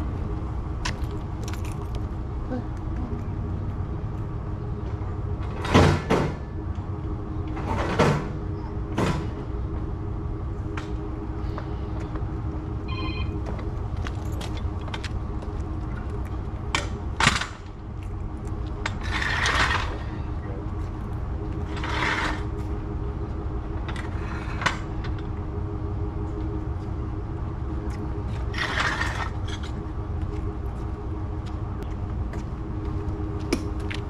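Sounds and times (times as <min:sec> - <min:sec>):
low engine hum: 0:00.0 - 0:34.0
noisy clatter: 0:04.1 - 0:09.5, 0:13.5 - 0:20.2, 0:21.1 - 0:22.7, 0:27.9 - 0:30.5.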